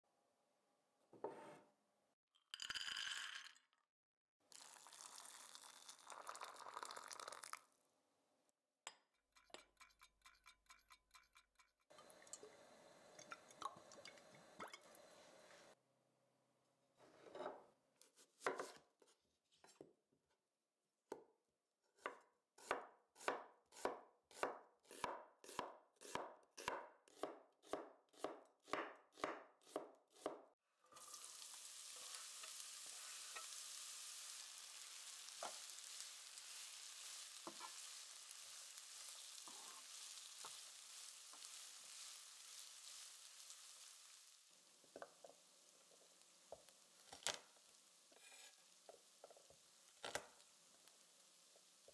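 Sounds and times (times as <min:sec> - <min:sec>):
cleaver chopping on cutting board: 0:22.0 - 0:30.4
onions sizzling in oil: 0:30.9 - 0:51.9.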